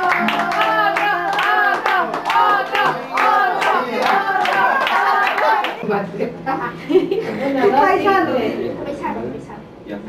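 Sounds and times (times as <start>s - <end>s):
people clapping: 0.0s - 5.8s
voices calling out: 0.0s - 5.8s.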